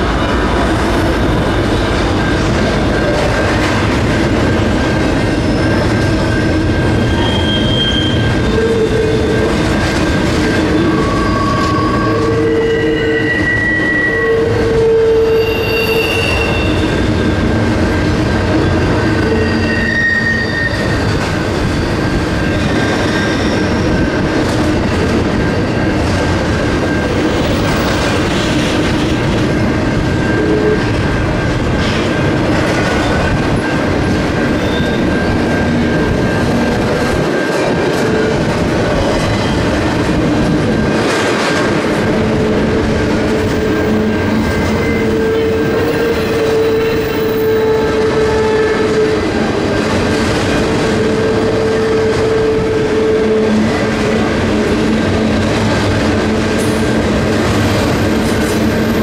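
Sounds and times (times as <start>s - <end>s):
clickety-clack over rail joints: 0.0s - 13.2s, 20.7s - 59.0s
train wheels rumbling on rail: 0.0s - 59.0s
wheel flange squeals: 5.0s - 17.6s, 18.6s - 24.2s, 33.0s - 40.0s, 42.4s - 50.0s.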